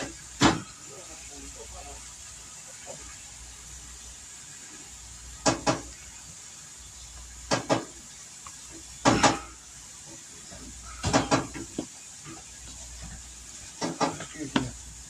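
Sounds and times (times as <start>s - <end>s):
faint steady hiss: 0.0s - 15.0s
kitchen utensils clattering: 9.0s - 9.6s, 10.9s - 11.8s.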